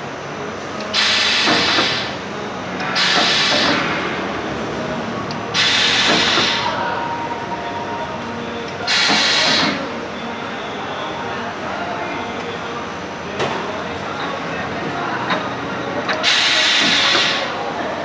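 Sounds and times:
machine running: 0:00.0 - 0:18.0
loud rush of machine noise: 0:00.9 - 0:07.6.

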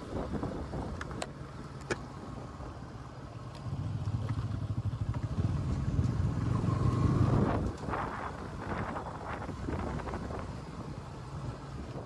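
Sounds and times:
motorcycle engine running: 0:02.3 - 0:12.0.

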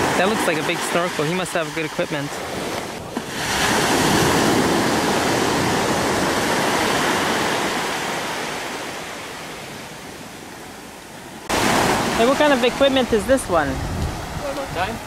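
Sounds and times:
waves breaking on beach: 0:00.0 - 0:15.0.

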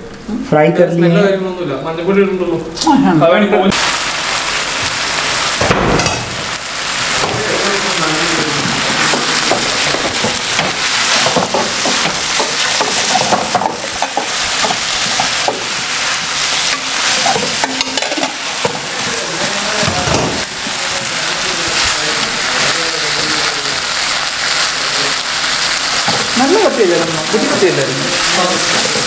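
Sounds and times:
onions sizzling in oil: 0:03.7 - 0:29.0
spatula scraping and tapping pan: 0:08.6 - 0:20.4.

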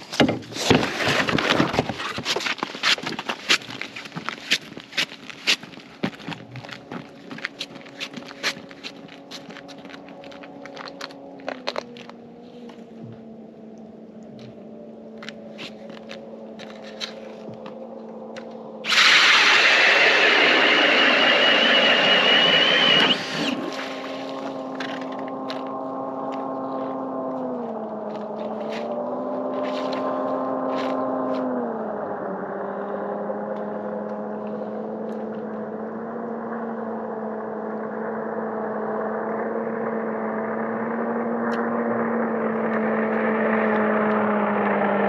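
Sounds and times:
footsteps crunching on ice: 0:00.0 - 0:13.3, 0:15.2 - 0:31.6
ice auger drilling: 0:00.1 - 0:04.4, 0:18.9 - 0:25.2
steady low hum: 0:17.3 - 0:28.1.

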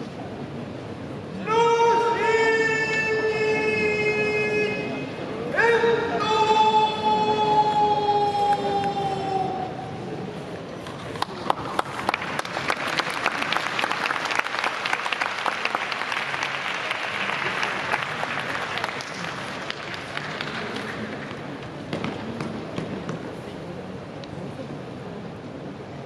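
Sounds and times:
crowd applauding: 0:10.8 - 0:21.4.

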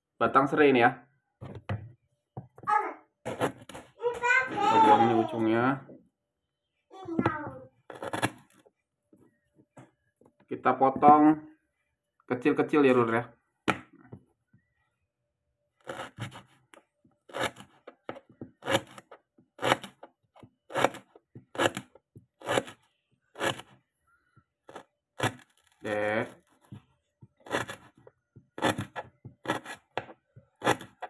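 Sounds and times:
knife cutting on plastic board: 0:03.2 - 0:04.0, 0:07.9 - 0:08.6, 0:15.8 - 0:23.8, 0:24.6 - 0:31.0.

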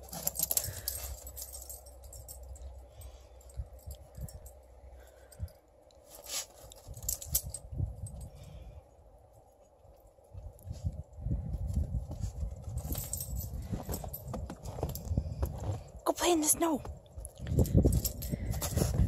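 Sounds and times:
dog collar tags jingling: 0:00.0 - 0:08.6, 0:12.2 - 0:15.7, 0:17.2 - 0:19.0.

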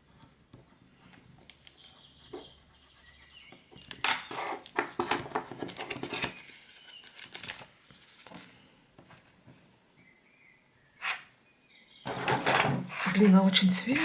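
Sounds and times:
plastic sheet crinkling: 0:04.9 - 0:08.4.

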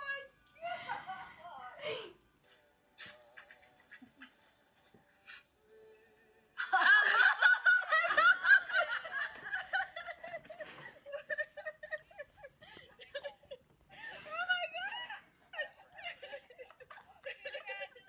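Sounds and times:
woman laughing through speaker: 0:00.6 - 0:02.1, 0:07.0 - 0:18.0.

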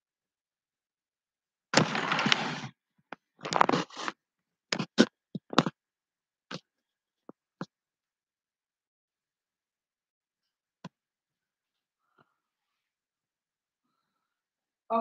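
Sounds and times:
scraping and rustling: 0:01.8 - 0:02.7, 0:03.4 - 0:04.1.

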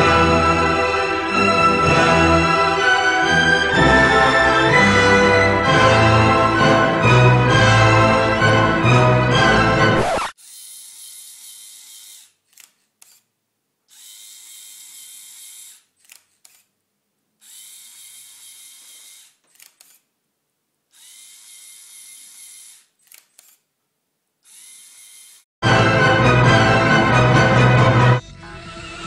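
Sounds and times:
servo motor whirring: 0:10.0 - 0:13.3, 0:13.9 - 0:16.7, 0:17.4 - 0:20.0, 0:20.9 - 0:23.6, 0:24.4 - 0:25.4
camera shutter clicks: 0:10.5 - 0:13.3, 0:14.0 - 0:16.7, 0:17.5 - 0:20.1, 0:22.4 - 0:23.6.

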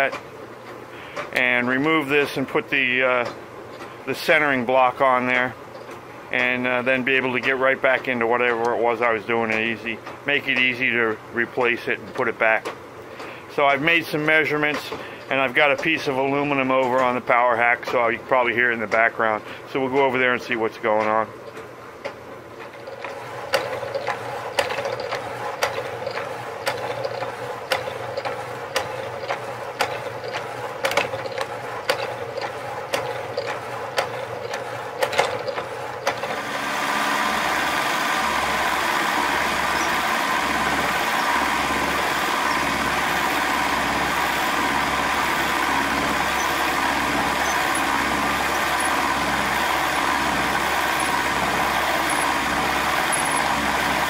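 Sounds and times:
milling machine cutting metal: 0:22.6 - 0:54.0
power hacksaw cutting metal: 0:22.8 - 0:54.0.

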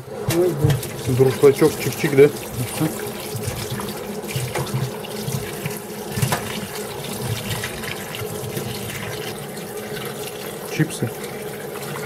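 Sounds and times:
tap running into metal colander: 0:00.3 - 0:12.0
water splashing: 0:00.3 - 0:12.0.

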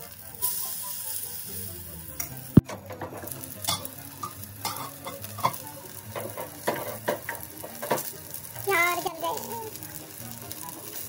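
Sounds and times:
batter sizzling in oil: 0:00.0 - 0:11.0
spoon clicking and scraping pan: 0:02.2 - 0:08.1.

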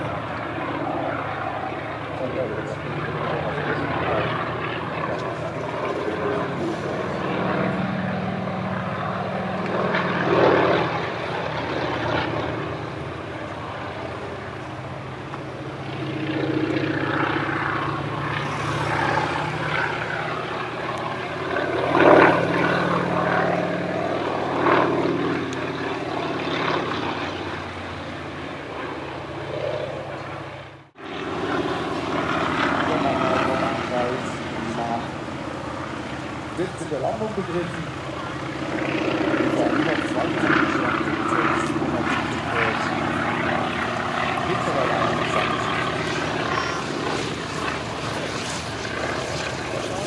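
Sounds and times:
propeller plane engine drone: 0:00.0 - 0:50.0.

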